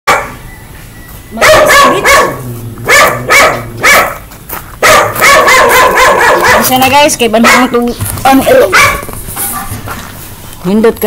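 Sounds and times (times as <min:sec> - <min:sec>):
dog barking: 0:00.1 - 0:00.4, 0:01.4 - 0:06.8, 0:07.4 - 0:07.9, 0:08.5 - 0:10.0.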